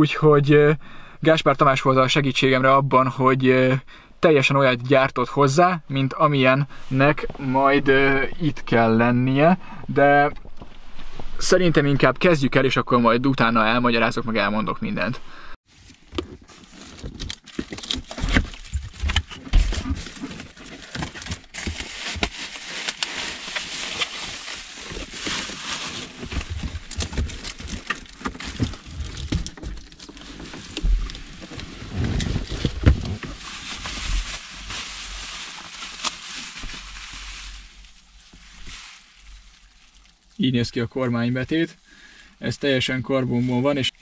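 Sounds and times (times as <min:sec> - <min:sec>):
rustling: 0:15.6 - 0:42.1.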